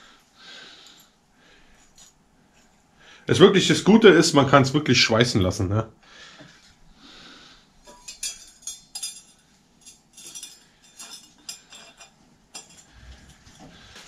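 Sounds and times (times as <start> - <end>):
metal chainring clinking in hands: 8.1 - 12.9.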